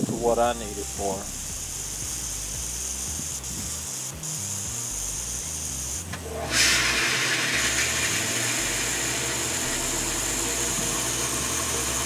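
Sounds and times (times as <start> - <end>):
water pump humming: 4.1 - 12.0.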